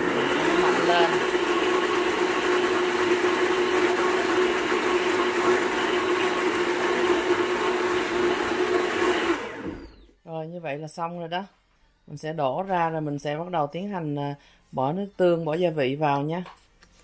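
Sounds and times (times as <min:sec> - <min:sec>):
blender motor whirring: 0:00.0 - 0:10.2.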